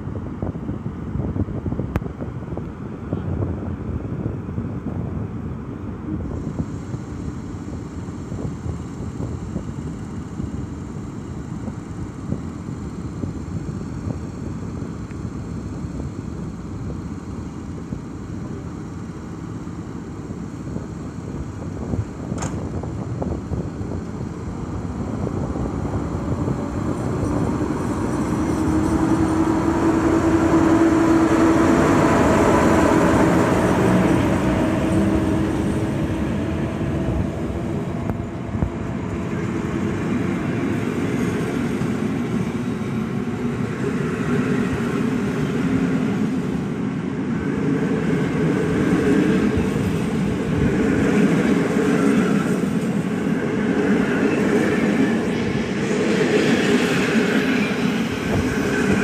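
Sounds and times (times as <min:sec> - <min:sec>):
locomotive mechanical hum: 0:00.0 - 0:59.0
train coaches rolling on rails: 0:09.1 - 0:59.0.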